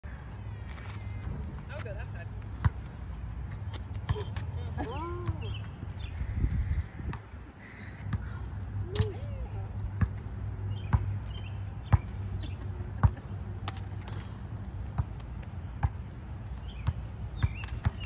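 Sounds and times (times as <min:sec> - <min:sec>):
ball bouncing on concrete: 0:09.8 - 0:14.2, 0:14.9 - 0:16.1, 0:16.7 - 0:18.0.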